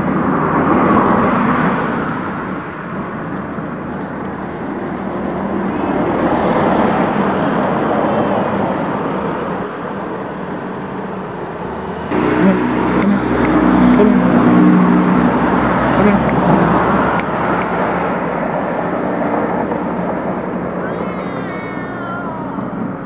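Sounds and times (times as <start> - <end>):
traffic passing: 0.0 - 23.0
low engine rumble: 2.2 - 23.0
steady hum: 12.1 - 17.6.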